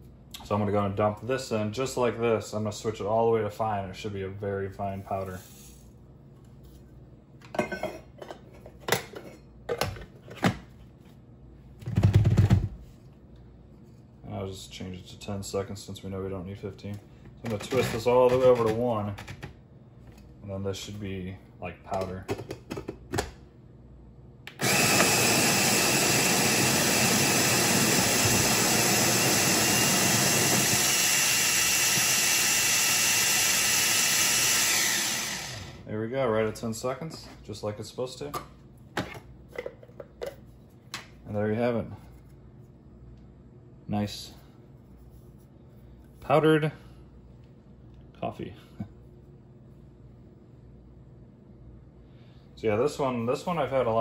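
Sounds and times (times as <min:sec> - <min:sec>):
coffee grinder whirring: 0:24.5 - 0:35.9.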